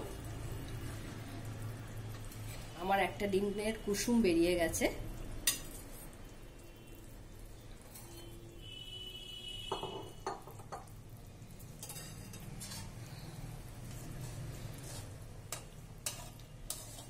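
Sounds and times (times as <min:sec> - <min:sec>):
metal spoon scraping a pot: 0:07.7 - 0:08.4, 0:11.8 - 0:13.4, 0:14.2 - 0:17.0.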